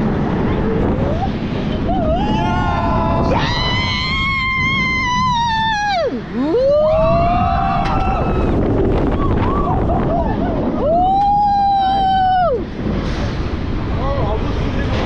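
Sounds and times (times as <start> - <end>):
wind rushing across microphone: 0.0 - 15.0
riders screaming: 1.9 - 12.6.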